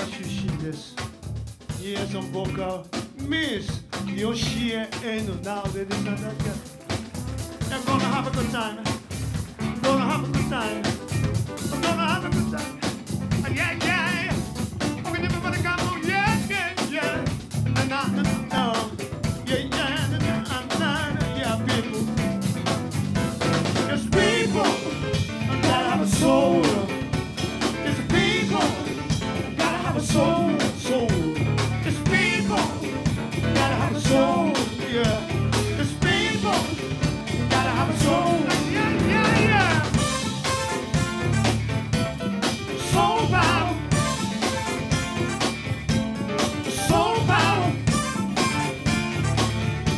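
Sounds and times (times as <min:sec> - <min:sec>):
live band playing upbeat groove: 0:00.0 - 0:49.9
person singing: 0:23.9 - 0:27.1, 0:27.7 - 0:40.0, 0:42.8 - 0:44.1, 0:46.6 - 0:48.6.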